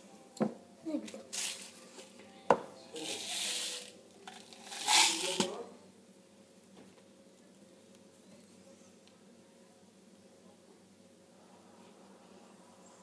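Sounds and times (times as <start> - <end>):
plastic sweet packet rustling: 1.1 - 2.1.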